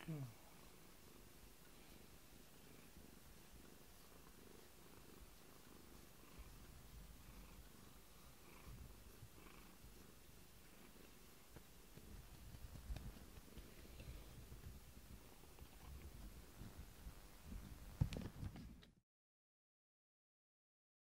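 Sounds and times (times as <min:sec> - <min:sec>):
cat purring: 0:00.0 - 0:18.8.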